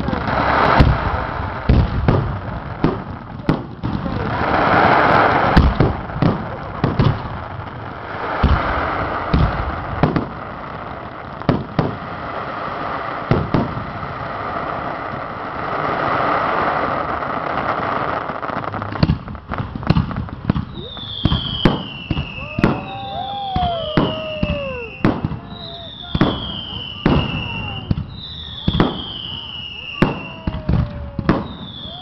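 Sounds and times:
firework shells booming: 0:00.0 - 0:10.7, 0:18.8 - 0:32.0.

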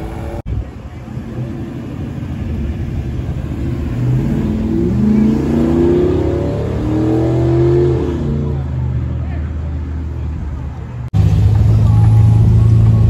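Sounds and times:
car engine revving: 0:01.2 - 0:09.0.

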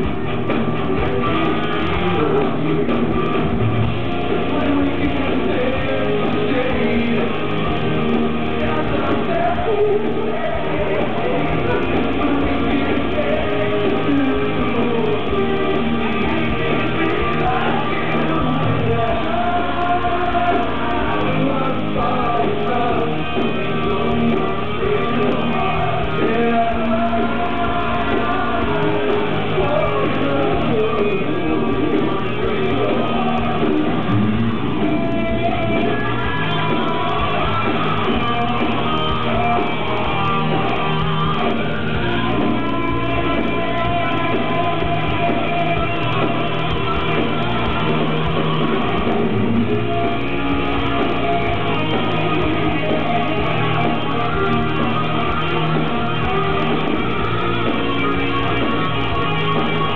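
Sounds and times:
rock band playing live: 0:00.0 - 0:59.9
man singing into a microphone: 0:04.2 - 0:47.9.

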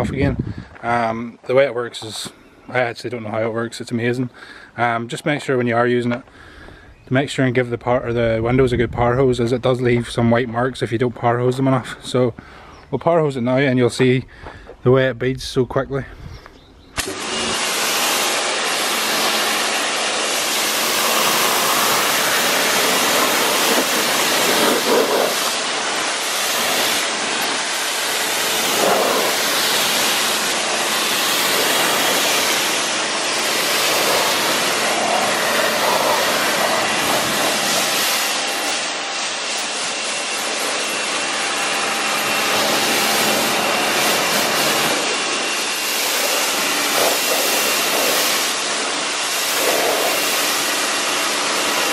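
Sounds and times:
pressure washer jet hissing: 0:17.0 - 0:51.9.

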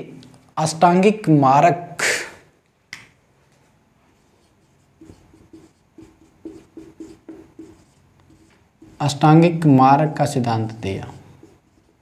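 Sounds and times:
marker squeaking on whiteboard: 0:04.2 - 0:09.6, 0:10.7 - 0:12.0.

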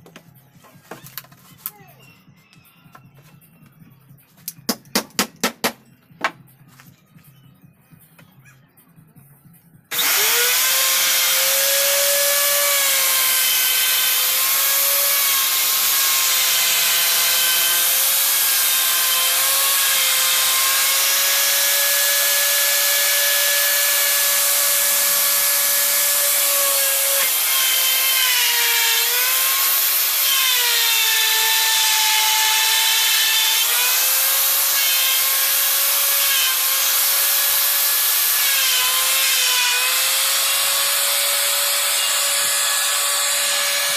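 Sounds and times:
router motor whine cutting board: 0:09.9 - 0:43.9.

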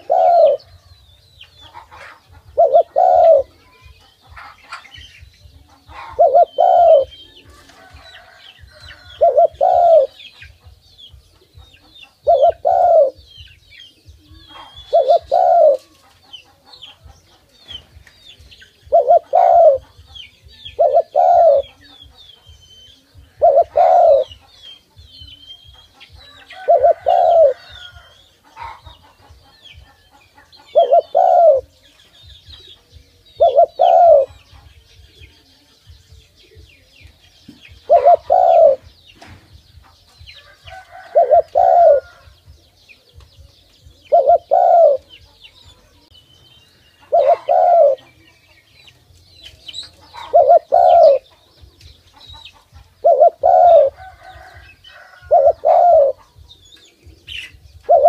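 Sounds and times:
dove cooing: 0:00.0 - 0:01.0, 0:01.6 - 0:10.8, 0:11.4 - 0:17.1, 0:18.5 - 0:22.1, 0:22.8 - 0:24.4, 0:25.6 - 0:31.8, 0:33.2 - 0:34.5, 0:36.5 - 0:39.0, 0:40.4 - 0:42.4, 0:43.9 - 0:45.9, 0:47.0 - 0:48.3, 0:49.9 - 0:58.0
small birds chirping: 0:00.0 - 0:58.0.

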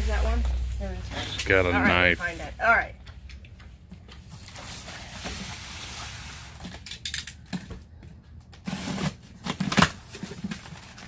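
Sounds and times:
box cutter slitting tape: 0:08.6 - 0:10.2.

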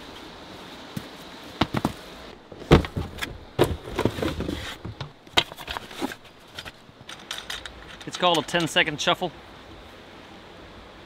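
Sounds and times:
plastic pan handled in cardboard box: 0:02.5 - 0:06.8.

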